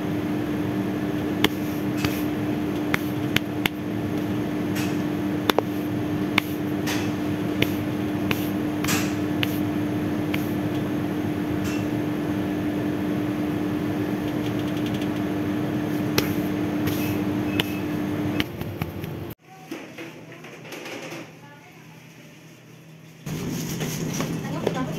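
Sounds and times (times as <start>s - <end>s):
machine hum: 0.0s - 19.4s.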